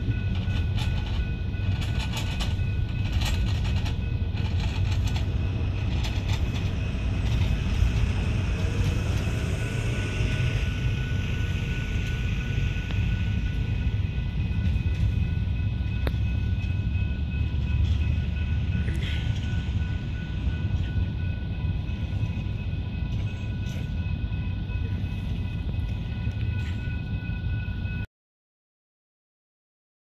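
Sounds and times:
wheels clicking over rail joints: 0.0s - 9.2s
train wheels rumbling on rail: 0.0s - 28.1s.

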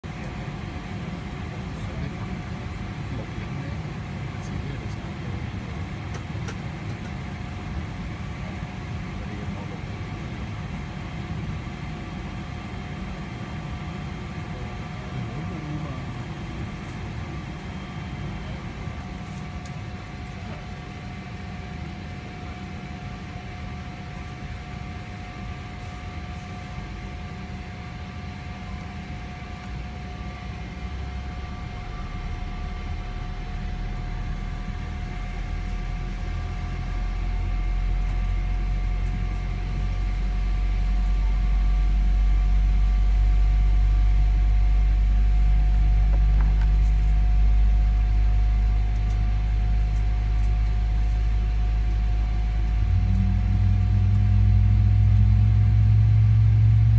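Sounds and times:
cabin hum of air and machinery: 0.0s - 56.9s
low rumble: 31.0s - 40.8s, 44.4s - 56.9s
whining tones: 52.3s - 56.9s.

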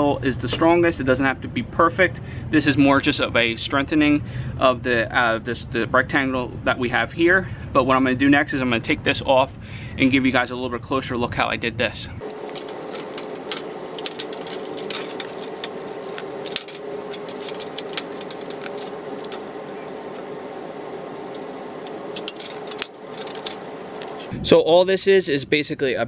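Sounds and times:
metallic clicks and rattles of tools: 12.2s - 24.3s
steady hum: 12.2s - 24.4s.

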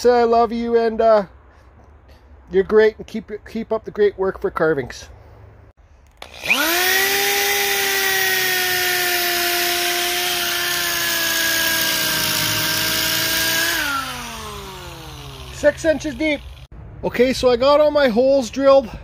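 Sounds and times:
electric drill whining: 6.0s - 16.7s.

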